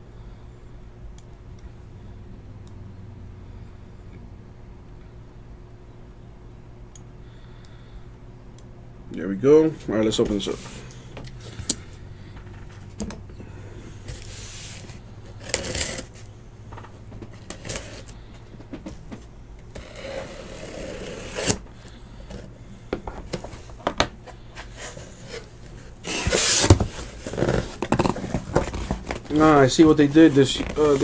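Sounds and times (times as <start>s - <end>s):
steady low hum: 0.0s - 31.0s
cardboard scraping and rustling: 24.6s - 31.0s.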